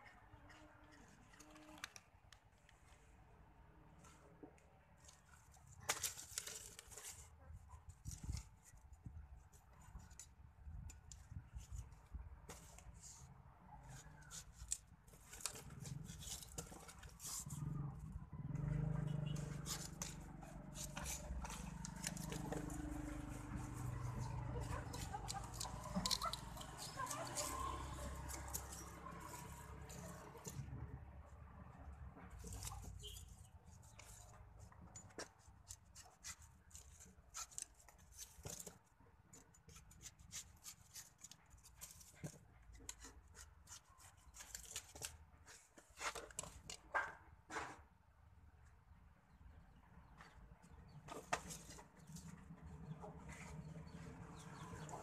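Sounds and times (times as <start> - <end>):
light clicks and scrapes: 4.0 - 31.0, 32.2 - 47.9, 50.2 - 55.0
knife cutting bananas: 19.2 - 30.7.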